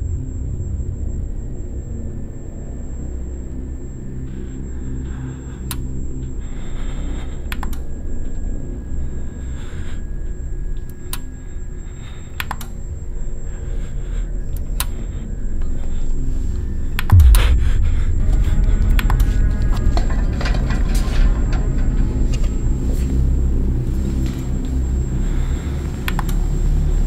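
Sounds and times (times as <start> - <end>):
low drone: 0.0 - 27.0
sharp clicks and ticks: 17.0 - 20.2, 26.1 - 26.4
loud low boom dropping in pitch: 17.1 - 21.0.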